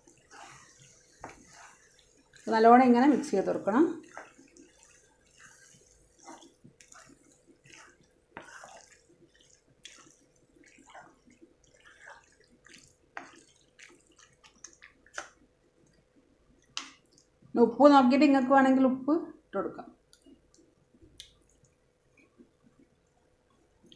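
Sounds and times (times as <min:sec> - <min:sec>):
wet squelches and scrapes: 0:00.0 - 0:16.0
spatula stirring sauce in pan: 0:00.0 - 0:17.3.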